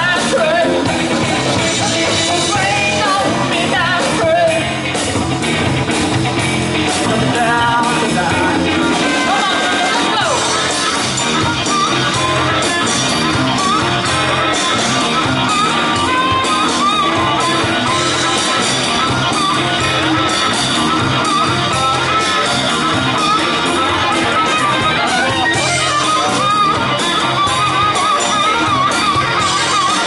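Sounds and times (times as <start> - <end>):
drums: 0.0 - 30.0
electric bass: 0.0 - 30.0
electric guitar: 0.0 - 30.0
harmonica solo with bending notes: 0.0 - 30.0.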